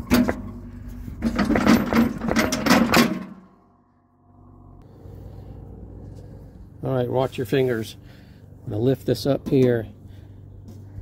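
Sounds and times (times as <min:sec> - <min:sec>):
metal clicks and knocks: 0:00.0 - 0:03.4
faint hum: 0:03.4 - 0:09.2.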